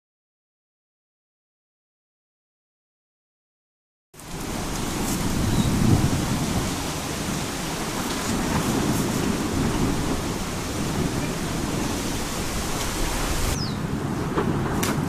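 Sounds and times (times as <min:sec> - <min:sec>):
lava fountain rushing noise: 0:04.2 - 0:15.0.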